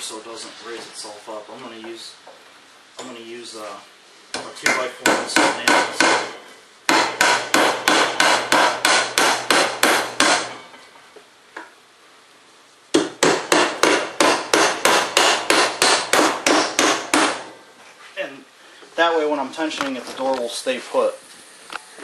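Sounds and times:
hammer driving nails into wood: 6.9 - 10.5, 12.9 - 17.5.

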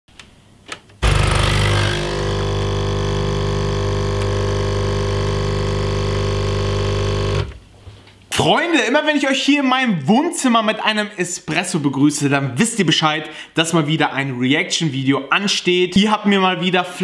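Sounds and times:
espresso machine pump buzzing: 1.0 - 7.6.

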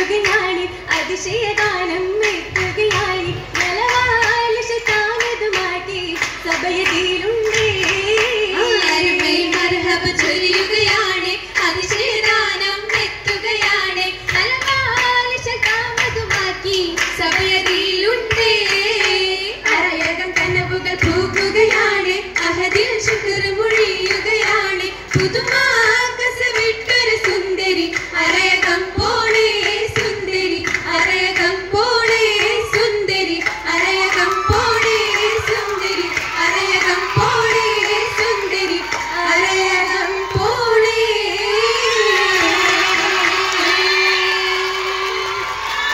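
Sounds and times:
girls singing together: 0.0 - 45.9
hand clapping: 0.1 - 11.0, 29.4 - 39.6.

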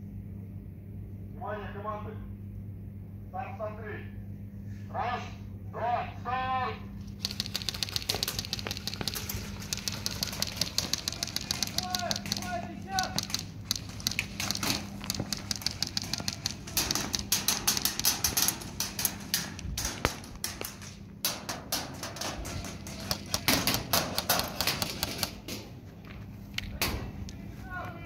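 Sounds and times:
airsoft rifles firing: 7.2 - 25.6.

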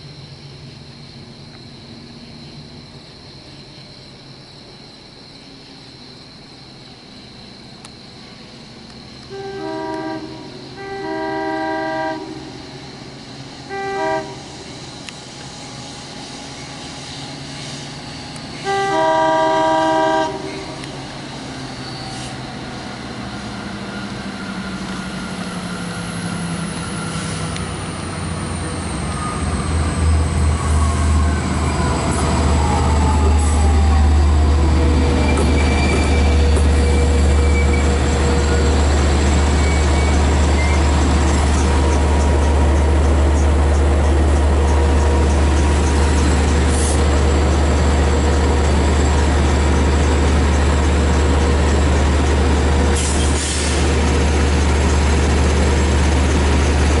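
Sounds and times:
locomotive horn blasts: 9.3 - 12.5, 13.7 - 14.5, 18.6 - 20.9
diesel engine rumbling: 20.2 - 57.0.

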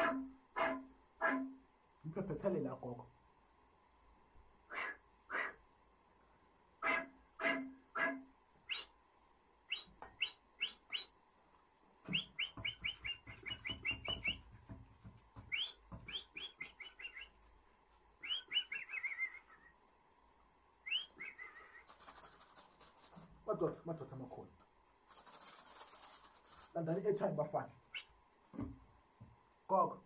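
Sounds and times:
high whistled chirps: 8.6 - 9.0, 9.7 - 11.2, 12.1 - 14.5, 15.4 - 17.5, 18.2 - 19.8, 20.8 - 22.4
gourd rattle shaking: 21.4 - 24.4, 25.0 - 27.2.

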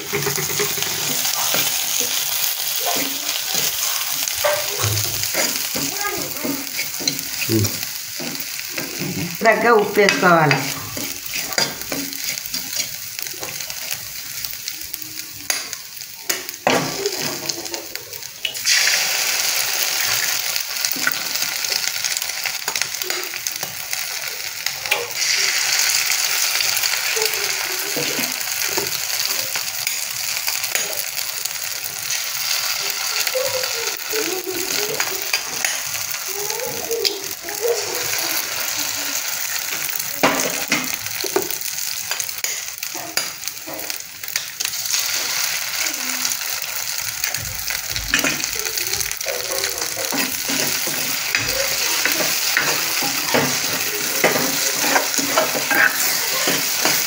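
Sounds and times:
spoon scraping a pan: 0.0 - 14.0, 48.1 - 48.5, 49.1 - 57.0
spices sizzling in oil: 0.0 - 57.0.

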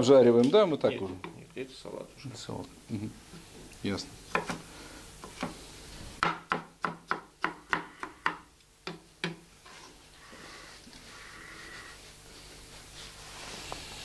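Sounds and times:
knife chopping on cutting board: 4.3 - 4.6, 6.2 - 9.4.

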